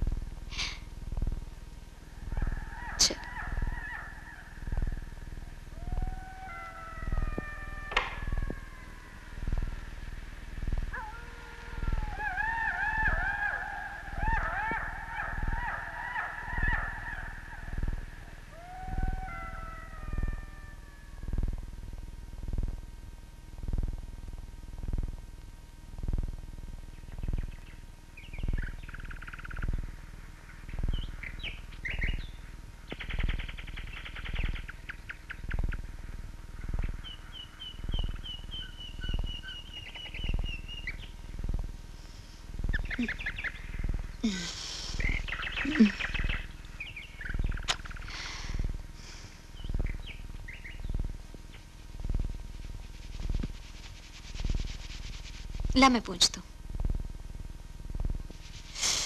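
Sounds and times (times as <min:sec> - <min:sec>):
high chirping calls: 0:30.7 - 0:35.8, 0:36.6 - 0:41.2, 0:42.7 - 0:48.6.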